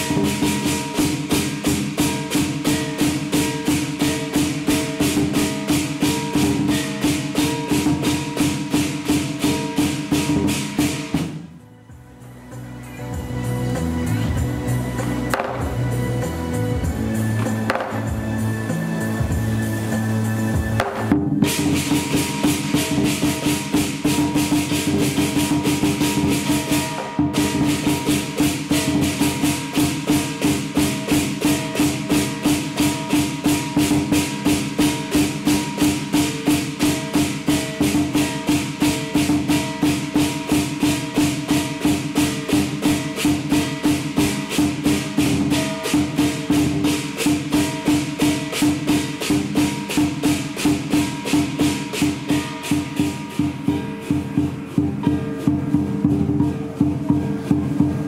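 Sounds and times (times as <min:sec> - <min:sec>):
big drum beating: 0:00.0 - 0:12.2, 0:13.1 - 0:58.0
cymbals clashing: 0:00.0 - 0:58.0
gong: 0:00.0 - 0:58.0.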